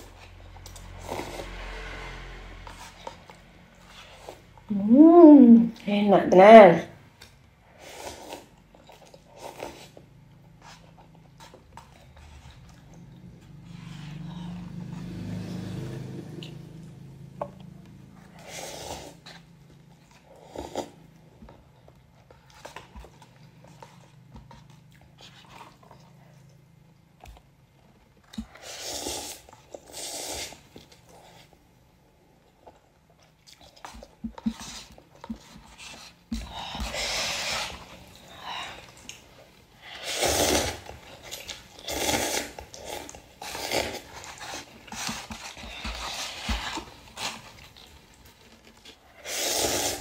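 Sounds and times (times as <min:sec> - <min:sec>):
chewing: 0:07.2 - 0:31.6, 0:32.4 - 0:50.0
noodles being slurped: 0:28.3 - 0:31.6, 0:32.4 - 0:50.0.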